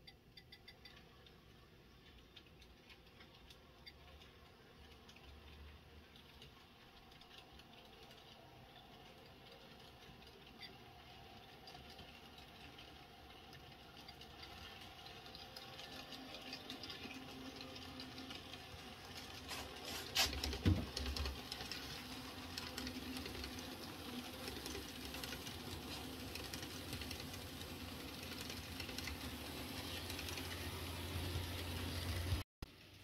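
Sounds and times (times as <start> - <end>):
wheels clicking over rail joints: 0.0 - 33.0
model train motor whirring: 9.3 - 32.4.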